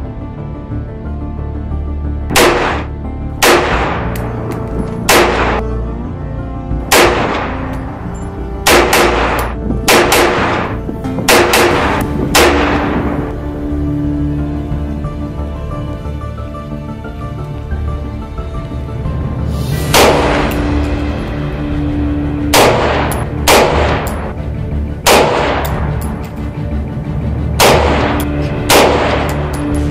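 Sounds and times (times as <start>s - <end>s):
rifle shots with echo: 2.3s - 4.4s, 5.0s - 5.7s, 6.9s - 7.7s, 8.6s - 13.2s, 19.9s - 20.6s, 22.5s - 24.3s, 25.0s - 26.0s, 27.6s - 29.6s.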